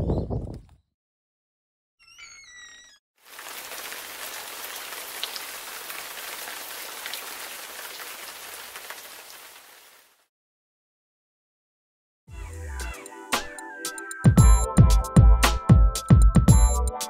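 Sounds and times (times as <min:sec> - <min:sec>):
water pouring and splashing: 0:03.2 - 0:10.2.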